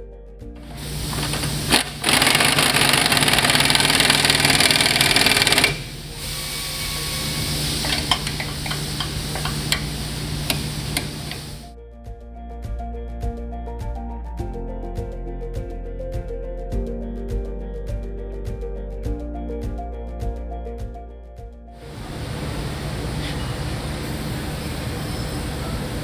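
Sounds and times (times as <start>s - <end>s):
pneumatic impact wrench hammering: 0.6s - 11.6s
torque wrench clicks: 1.2s - 6.1s, 7.8s - 9.9s, 10.5s - 11.6s.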